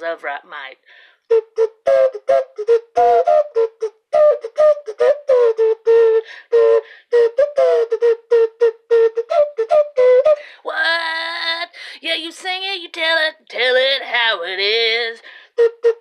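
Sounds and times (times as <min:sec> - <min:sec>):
breathy flute-like notes: 0:01.0 - 0:10.7, 0:15.2 - 0:16.0.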